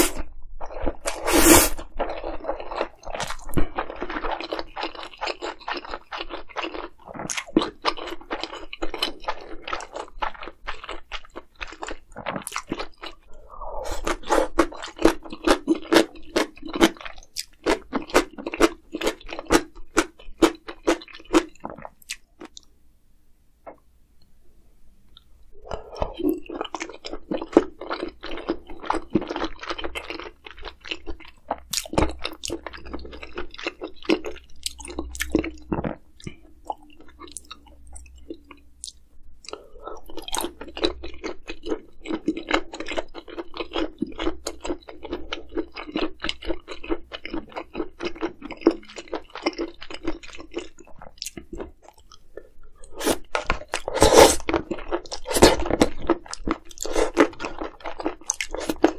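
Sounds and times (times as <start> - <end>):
person chewing and crunching food: 0.0 - 22.7, 25.1 - 58.9.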